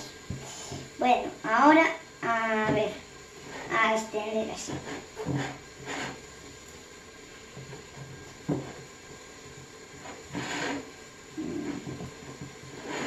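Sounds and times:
hands rubbing caramel in mould: 0:04.6 - 0:06.2, 0:09.9 - 0:13.0.

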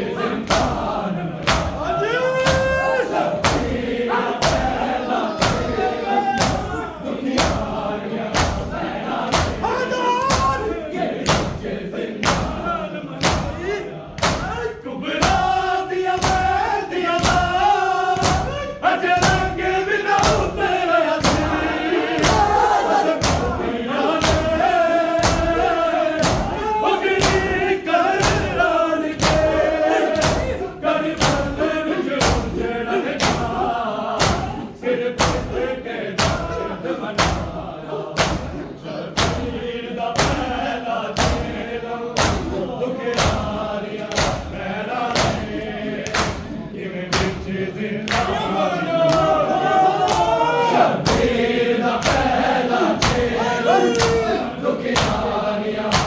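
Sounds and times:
men chanting in unison: 0:00.0 - 0:56.0.

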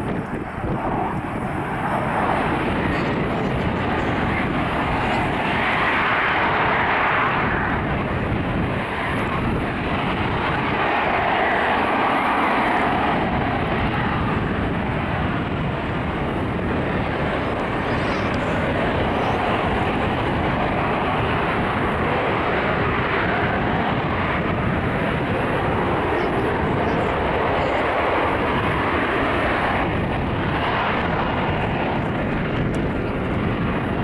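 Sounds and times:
jet engine rushing: 0:00.0 - 0:34.0.

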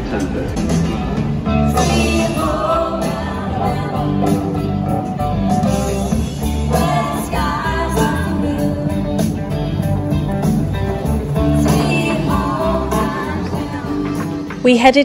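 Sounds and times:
electric guitar: 0:00.0 - 0:14.7
woman singing: 0:01.7 - 0:04.9, 0:06.6 - 0:09.5, 0:11.6 - 0:15.0.

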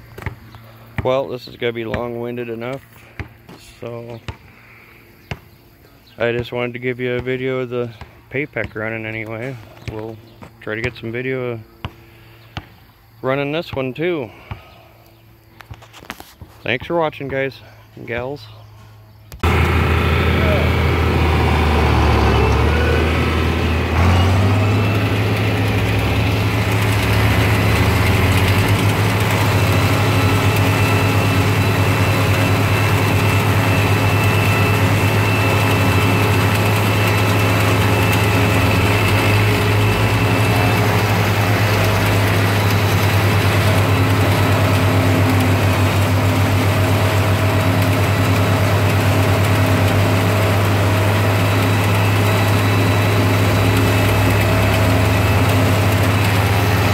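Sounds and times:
tractor engine running: 0:19.3 - 0:56.9
forage chopper cutting corn: 0:19.4 - 0:56.9.

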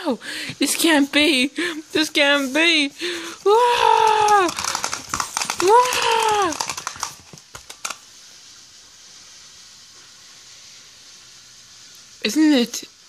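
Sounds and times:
toy clicking and rattling: 0:03.8 - 0:08.1
high voice-like toy wail: 0:05.6 - 0:06.7.

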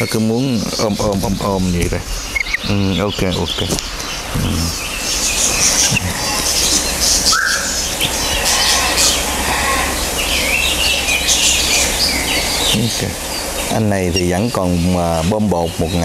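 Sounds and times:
parrots chirping: 0:00.0 - 0:16.0
steady low hum: 0:00.0 - 0:16.0
lower rising parrot call: 0:04.0 - 0:13.7.

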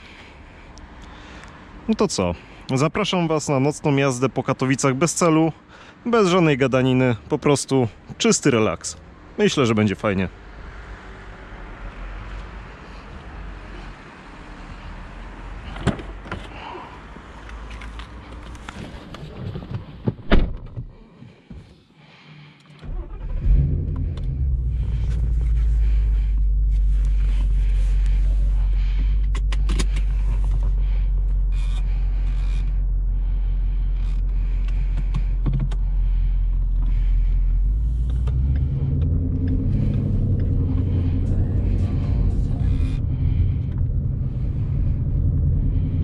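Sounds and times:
car door shutting: 0:19.6 - 0:20.9
car engine starting and idling: 0:22.7 - 0:46.0.

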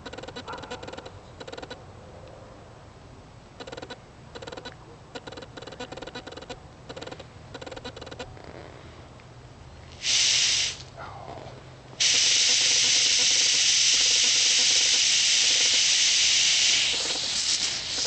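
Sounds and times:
pressurised gas hissing: 0:10.0 - 0:10.9, 0:12.0 - 0:18.0.

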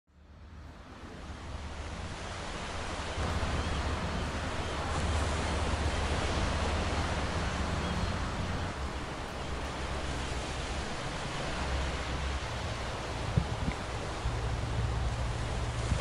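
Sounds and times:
river water rushing: 0:00.2 - 0:16.0
wind rushing: 0:09.7 - 0:16.0.

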